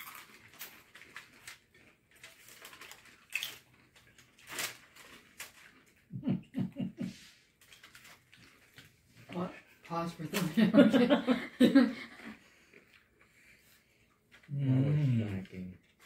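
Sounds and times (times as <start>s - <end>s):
chips rustling and crunching: 0.0s - 6.1s, 7.5s - 10.6s
people laughing: 6.1s - 7.3s, 10.4s - 12.4s.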